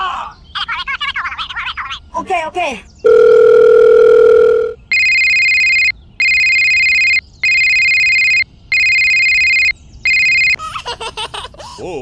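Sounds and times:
dial tone: 3.1s - 10.6s
electronic phone ringtone: 3.1s - 10.6s.

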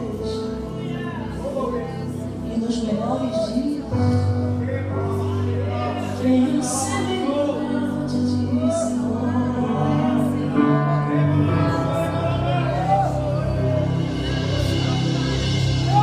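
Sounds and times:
bass: 0.0s - 16.0s
keyboard chords: 0.0s - 16.0s
person singing: 5.2s - 16.0s.

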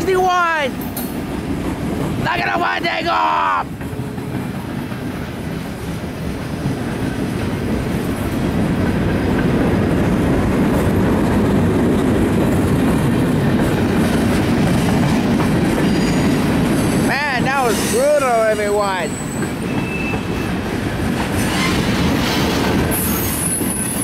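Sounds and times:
freight train passing: 0.0s - 24.0s.

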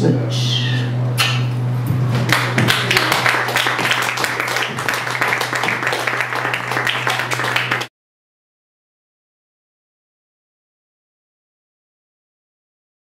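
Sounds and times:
steady low hum: 0.0s - 7.9s
audience clapping: 2.2s - 7.9s.

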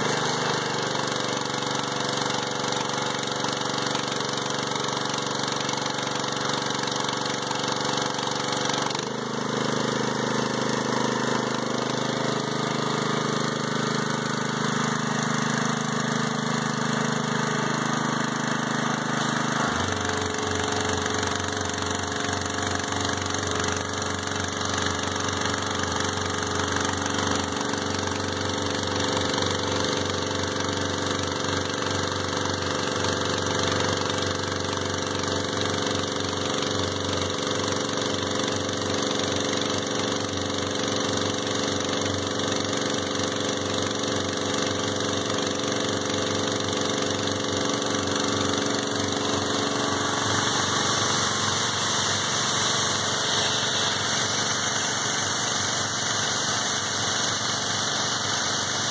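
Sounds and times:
pressure washer engine running: 0.0s - 58.9s
hiss of high-pressure water jet: 49.8s - 58.9s.

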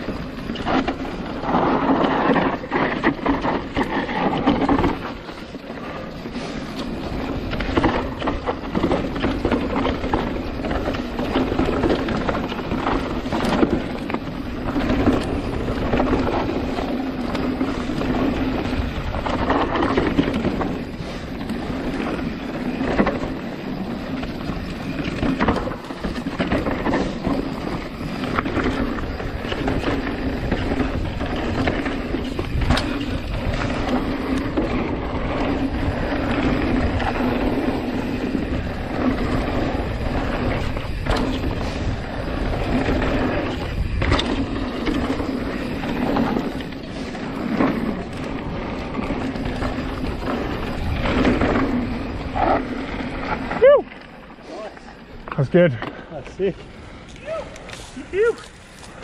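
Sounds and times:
bike knocking and rattling: 0.0s - 59.0s
tyres rolling over dirt: 0.0s - 59.0s
wind on microphone: 26.1s - 53.7s.

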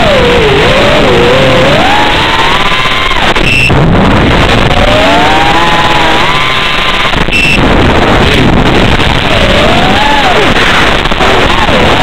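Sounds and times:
signal crackle: 2.4s - 12.0s
radio hiss: 5.4s - 12.0s.

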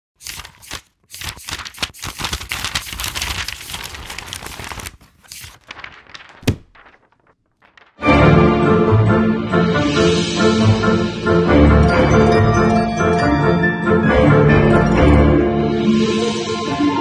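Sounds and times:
paper rustling and tearing: 0.2s - 8.0s.

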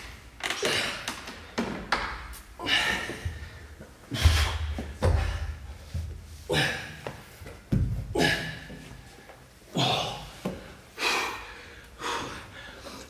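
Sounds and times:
man breathing hard: 2.6s - 13.0s.

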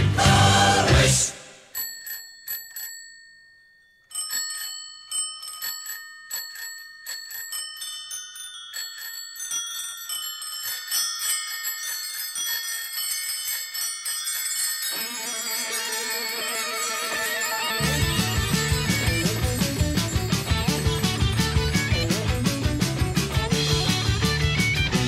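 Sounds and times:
bicycle bells ringing: 1.7s - 24.9s
rock band guitars: 17.8s - 25.0s.

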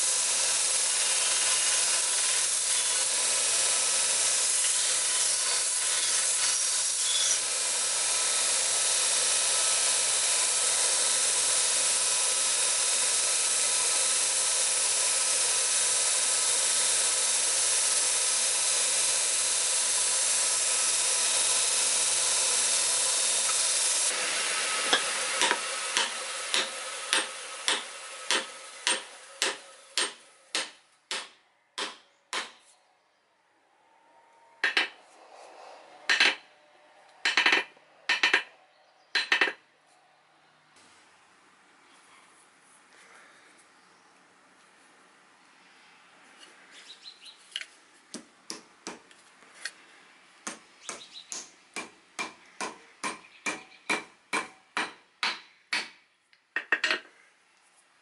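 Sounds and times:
electric sander running: 0.0s - 29.8s
sharp metal knocks: 37.2s - 38.5s.

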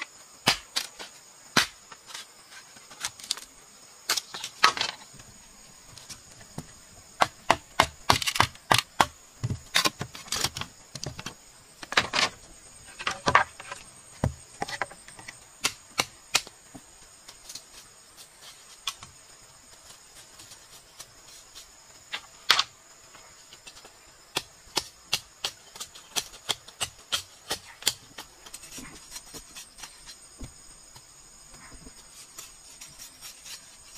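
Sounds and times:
insects buzzing: 0.0s - 33.9s
knife splitting bamboo: 7.2s - 10.6s, 32.1s - 33.9s.

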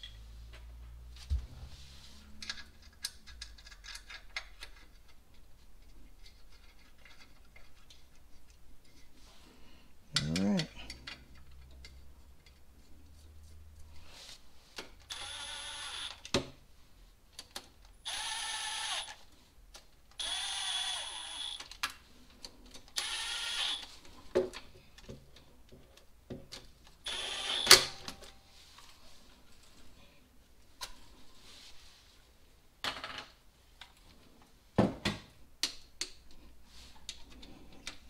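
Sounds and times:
cordless power driver: 15.1s - 16.2s, 18.1s - 19.2s, 20.2s - 21.6s, 23.0s - 23.9s, 27.1s - 27.9s.

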